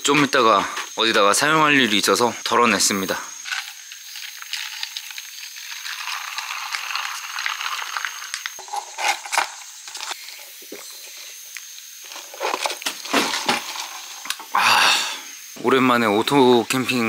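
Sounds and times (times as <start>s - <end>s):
fizzing hiss: 1.9s - 17.0s
ice cubes crackling in a cup: 3.4s - 10.2s.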